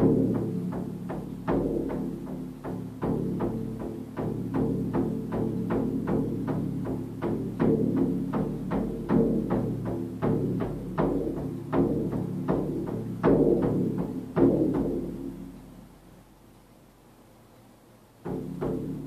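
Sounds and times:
frame drum beating: 0:00.0 - 0:16.0, 0:18.2 - 0:19.0.

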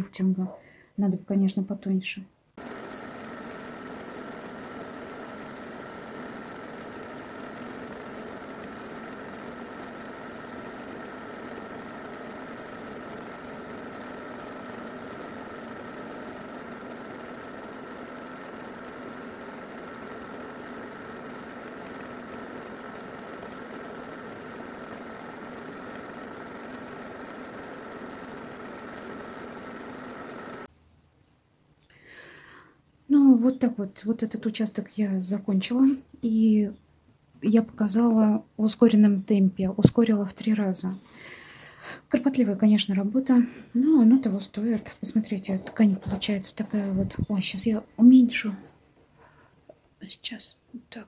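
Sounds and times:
sewing machine whirring: 0:02.6 - 0:30.7.

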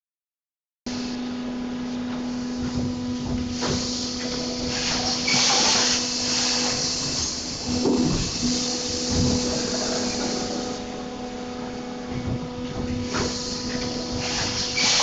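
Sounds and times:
machine motor hum: 0:01.2 - 0:15.0
hiss bursts: 0:03.5 - 0:10.9, 0:13.0 - 0:15.0.

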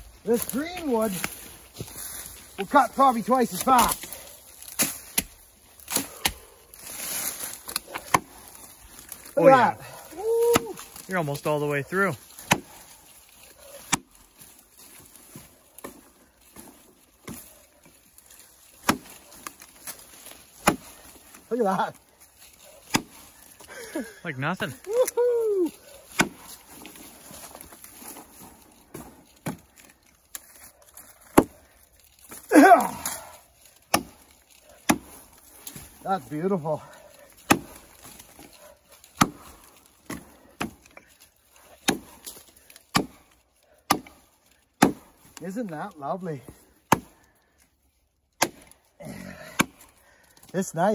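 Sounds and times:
axe chopping into log: 0:04.6 - 0:06.4, 0:07.7 - 0:08.3, 0:12.3 - 0:12.8, 0:13.8 - 0:14.1, 0:18.8 - 0:20.0, 0:20.6 - 0:21.0, 0:22.8 - 0:23.2, 0:26.1 - 0:26.6, 0:31.2 - 0:31.6, 0:33.9 - 0:35.9, 0:37.4 - 0:38.2, 0:39.0 - 0:40.8, 0:41.8 - 0:43.2, 0:43.9 - 0:44.2, 0:44.8 - 0:45.3, 0:46.9 - 0:47.2, 0:48.4 - 0:48.8, 0:49.4 - 0:49.8.

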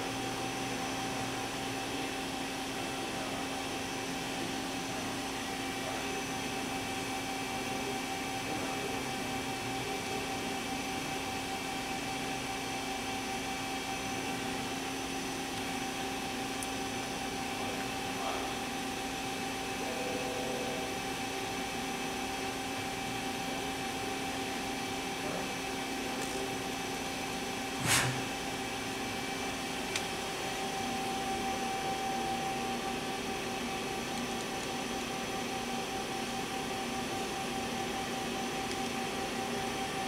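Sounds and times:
machine humming with whine: 0:00.0 - 0:40.0
short sharp noise: 0:27.8 - 0:28.3.

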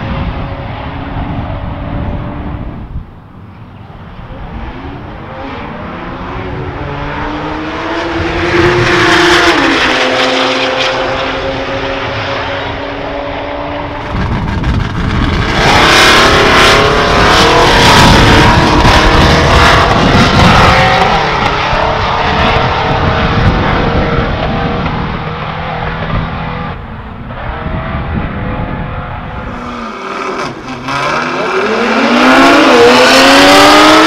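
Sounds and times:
cars accelerating hard: 0:04.1 - 0:34.0.

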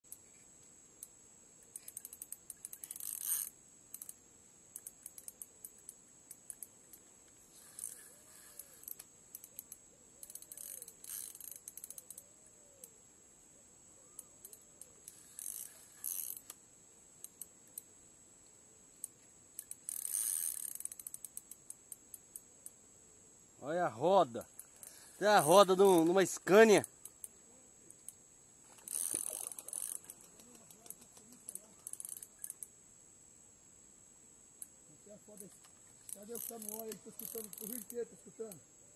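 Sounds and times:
fishing reel clicking: 0:01.0 - 0:12.9, 0:14.1 - 0:16.6, 0:17.2 - 0:17.9, 0:19.0 - 0:22.8, 0:24.4 - 0:27.3, 0:28.0 - 0:32.7, 0:35.3 - 0:38.6.

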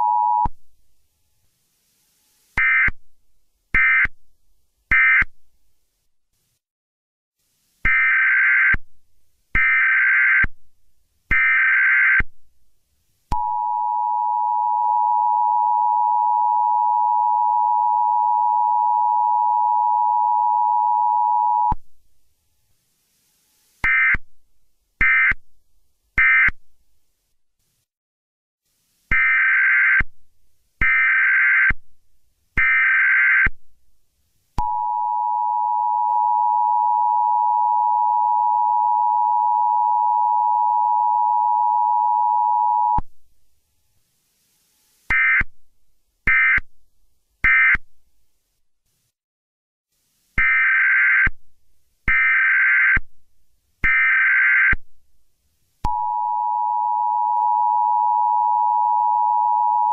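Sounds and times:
long steady electronic beep: 0:00.0 - 0:00.5, 0:13.3 - 0:21.8, 0:34.6 - 0:43.0, 0:55.9 - 0:59.9
short higher beeps: 0:55.9 - 0:59.9.

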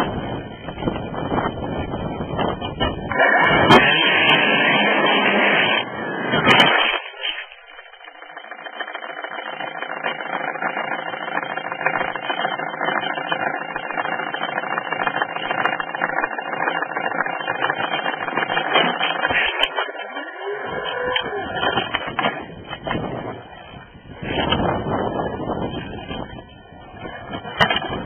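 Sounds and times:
small motor buzzing: 0:12.8 - 0:22.0.

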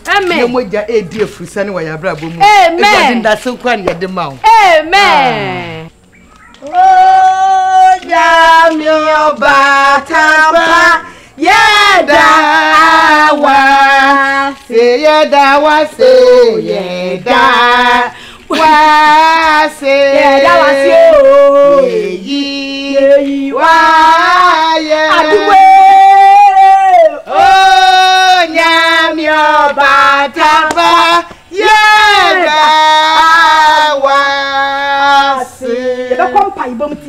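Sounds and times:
woman singing: 0:06.7 - 0:26.8.

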